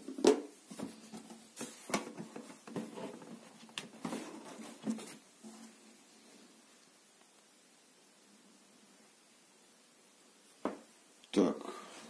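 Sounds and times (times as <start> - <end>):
cardboard box being handled: 0.7 - 5.6.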